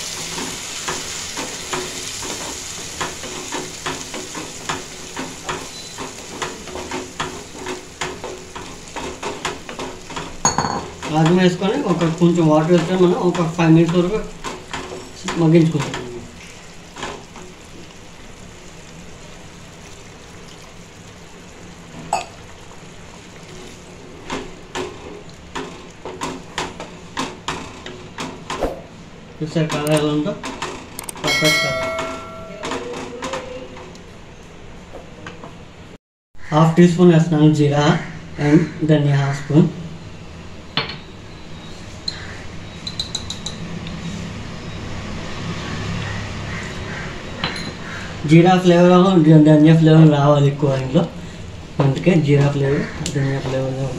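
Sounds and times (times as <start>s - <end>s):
curry simmering hiss: 0.0s - 27.1s.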